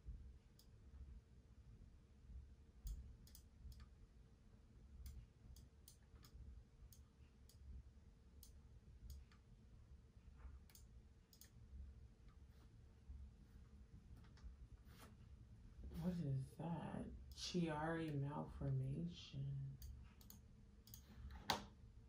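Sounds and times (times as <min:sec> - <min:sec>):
faint steady hum: 0:00.0 - 0:22.0
computer mouse clicks: 0:02.8 - 0:04.0, 0:05.0 - 0:07.7, 0:08.4 - 0:09.5, 0:10.6 - 0:11.6, 0:19.8 - 0:21.7.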